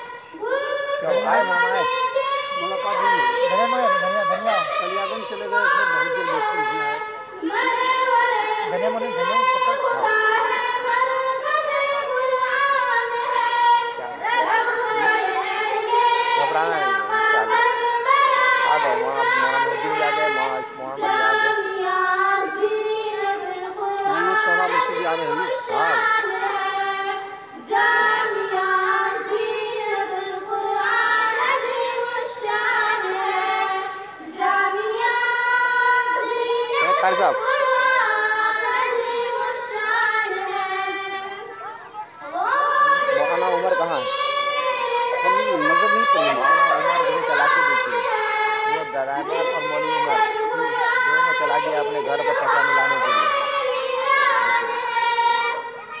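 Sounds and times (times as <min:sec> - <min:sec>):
child singing: 0:00.0 - 0:56.0.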